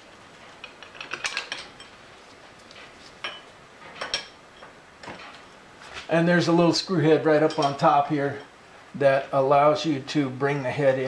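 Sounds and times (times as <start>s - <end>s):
wrench and bolt clinking on metal: 0.6s - 1.9s, 7.4s - 7.8s.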